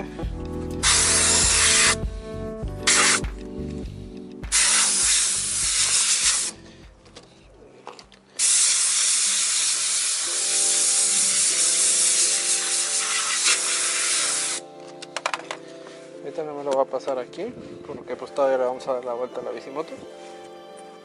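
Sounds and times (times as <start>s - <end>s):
steam cleaner hissing: 0.8s - 2.0s, 2.8s - 3.3s, 4.5s - 6.6s, 8.4s - 14.6s.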